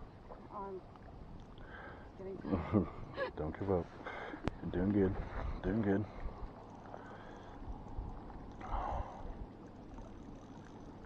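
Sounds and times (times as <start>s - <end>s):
small waves lapping: 0.0s - 11.0s
wind buffeting the microphone: 4.4s - 6.6s.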